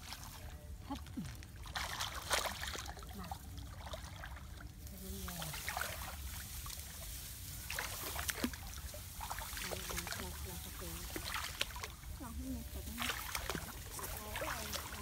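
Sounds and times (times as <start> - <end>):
water sloshing around wading legs: 0.0 - 15.0
rice stalks rustling: 4.7 - 15.0.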